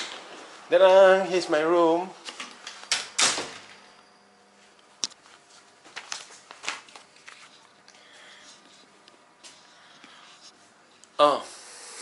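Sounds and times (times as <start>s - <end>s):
rustles of handling things: 4.5s - 11.1s.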